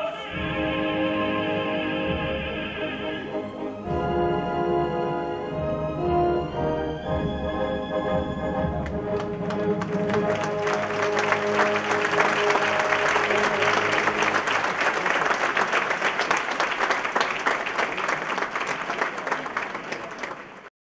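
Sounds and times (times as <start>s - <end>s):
orchestra holding final chord: 8.6s - 15.5s
audience applauding: 8.6s - 20.7s.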